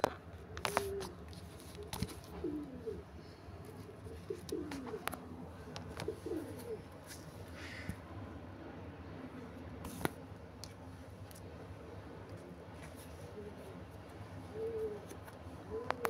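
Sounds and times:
dove cooing: 0.3s - 9.7s, 12.5s - 16.0s.

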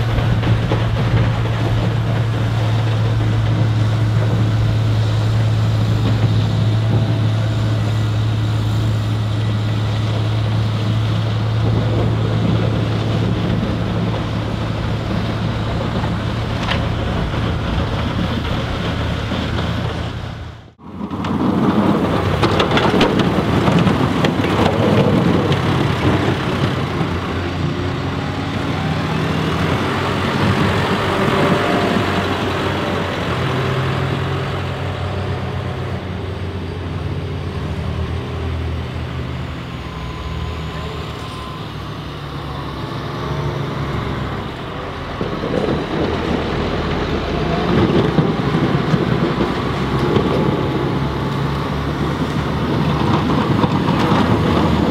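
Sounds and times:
snowblower rushing hum: 0.0s - 54.9s
tractor with plow running: 0.0s - 54.9s.

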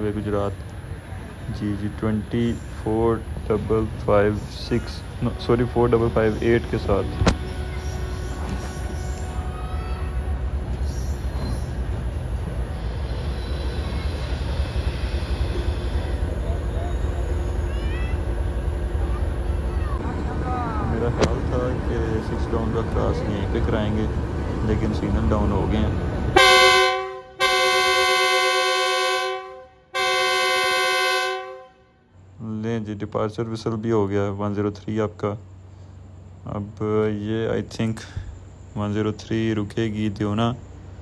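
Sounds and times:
locomotive engine and rolling rumble: 0.0s - 41.0s
faint wheel squeal on rails: 1.9s - 18.7s
locomotive air horn blasts: 5.2s - 10.6s, 26.4s - 32.0s.

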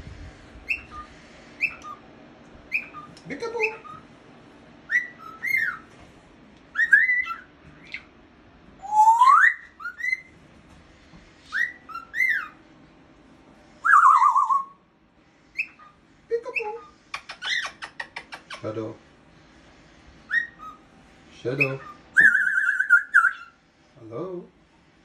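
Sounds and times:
cockatiel whistling: 0.6s - 2.0s, 2.7s - 4.1s, 4.9s - 5.9s, 6.7s - 8.1s, 8.8s - 10.3s, 11.4s - 12.6s, 13.8s - 14.8s, 15.5s - 18.6s, 20.2s - 20.9s, 21.6s - 23.6s.

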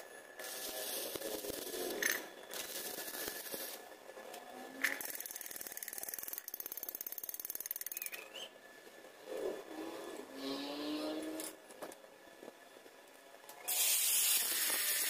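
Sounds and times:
welding arc crackling: 0.4s - 4.0s, 13.7s - 15.0s.

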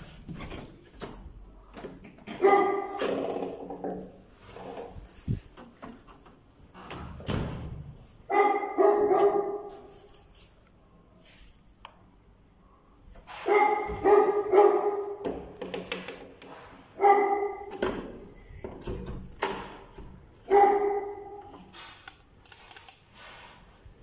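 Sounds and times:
dog barking: 2.4s - 3.0s, 8.3s - 9.9s, 13.4s - 15.2s, 17.0s - 17.7s, 20.5s - 21.5s.

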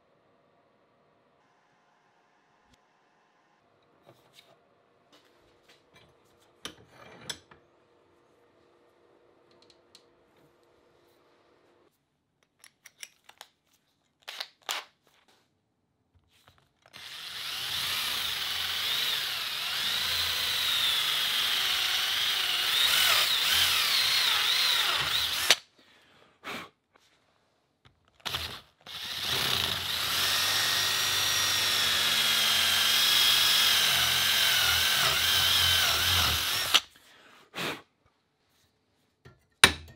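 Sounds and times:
cordless drill boring into wood: 16.9s - 25.6s, 28.2s - 36.9s.

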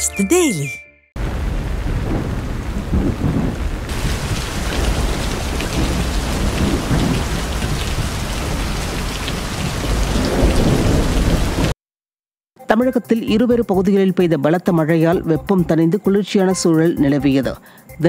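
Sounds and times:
low rolls of thunder: 1.2s - 11.7s
heavy rain pouring: 1.2s - 11.8s.

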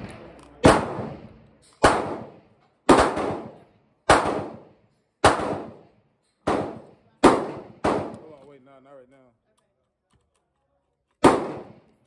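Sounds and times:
echoing gunshots: 0.0s - 8.2s, 11.2s - 11.9s.

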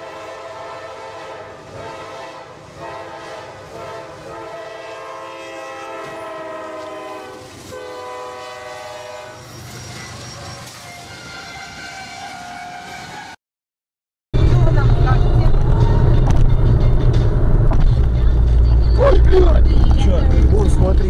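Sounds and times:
locomotive air horn blasts: 0.0s - 13.4s.

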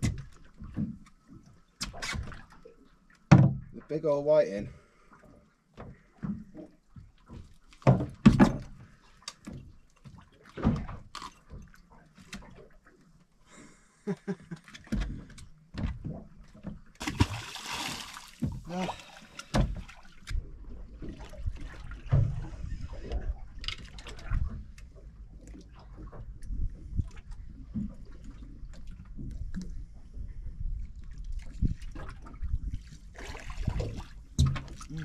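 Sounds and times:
knocks and thumps on boat deck: 0.0s - 1.0s, 3.3s - 3.8s, 5.7s - 12.6s, 14.8s - 17.5s, 18.4s - 18.7s, 19.4s - 20.0s, 33.6s - 35.0s
fish splashing into water: 17.0s - 20.2s.

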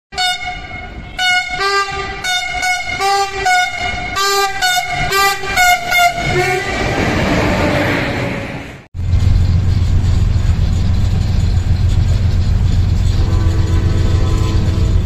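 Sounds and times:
locomotive air horn short blasts: 0.1s - 6.8s, 13.1s - 15.0s
rush of passing train: 0.2s - 15.0s.

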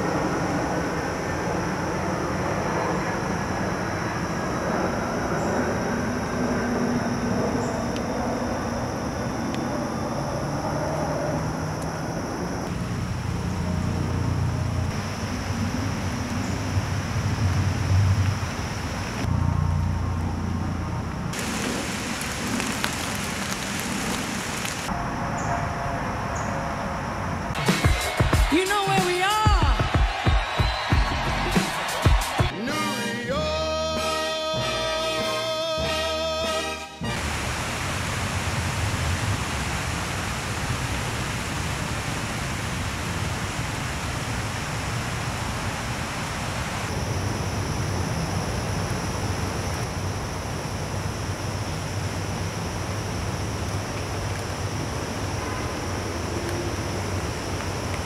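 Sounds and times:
outdoor hiss with low rumble: 12.3s - 25.0s, 37.0s - 58.0s.

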